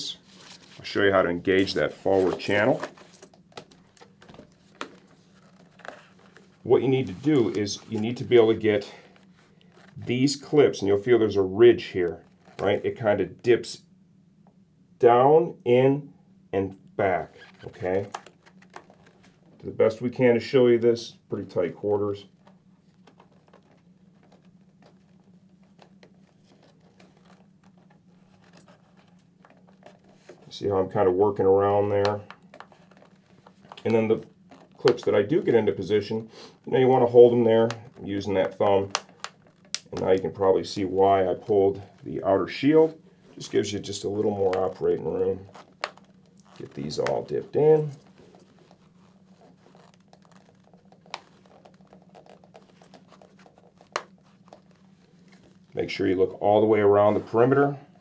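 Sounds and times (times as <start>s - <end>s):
low steady hum: 0.0s - 58.0s
fingers rustling: 43.1s - 55.8s.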